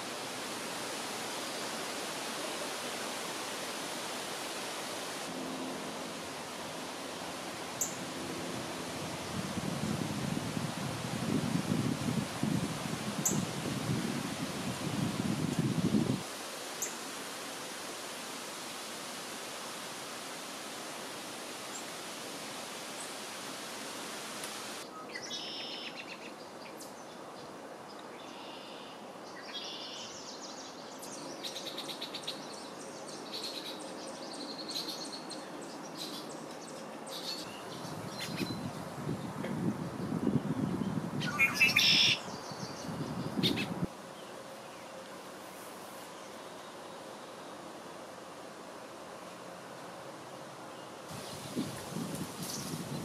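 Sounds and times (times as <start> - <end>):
steady outdoor hiss: 0.0 - 53.0
birds chirping and calling: 41.2 - 43.8.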